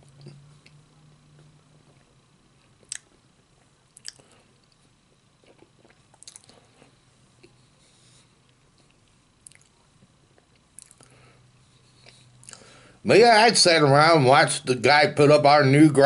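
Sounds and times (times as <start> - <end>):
person chewing food: 0.0 - 12.8
wet mouth clicks and smacks: 2.8 - 3.2, 4.0 - 4.8, 5.5 - 6.6, 10.4 - 11.1.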